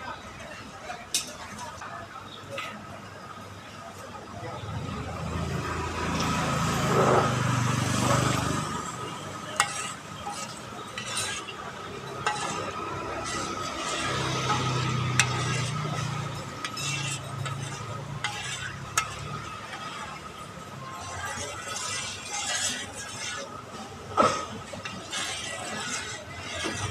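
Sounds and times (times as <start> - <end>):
oil sizzling: 8.1 - 23.6.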